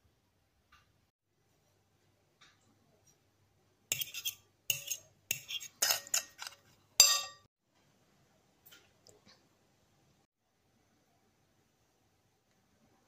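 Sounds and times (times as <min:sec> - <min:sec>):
fork clinking against bowl: 0:03.9 - 0:07.5.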